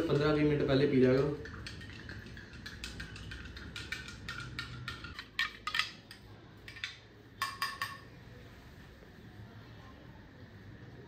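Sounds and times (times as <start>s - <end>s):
spoon clinking in a cup: 0.0s - 8.1s.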